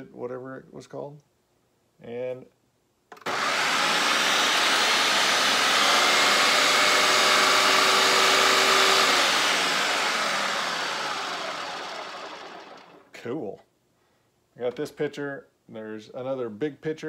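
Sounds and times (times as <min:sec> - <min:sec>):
blender motor running: 0:03.2 - 0:13.1.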